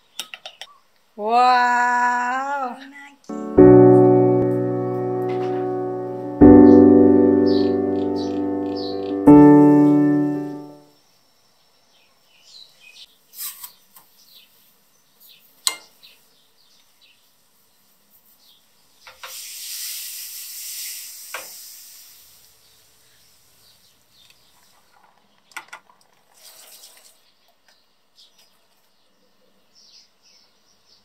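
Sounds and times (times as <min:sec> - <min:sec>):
sugar grains pouring hiss: 0:19.2 - 0:23.7.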